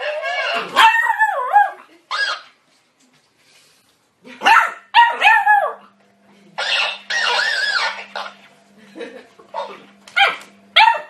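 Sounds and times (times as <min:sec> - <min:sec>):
puppy barking: 0:00.0 - 0:02.5, 0:04.3 - 0:05.8, 0:06.6 - 0:08.4, 0:09.6 - 0:11.0.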